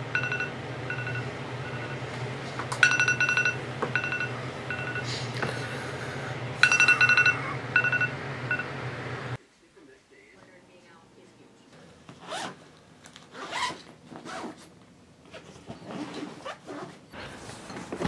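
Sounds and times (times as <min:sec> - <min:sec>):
phone alarm beeps: 0:00.0 - 0:02.0, 0:02.8 - 0:05.1, 0:06.6 - 0:08.7
steady low hum: 0:00.0 - 0:12.1.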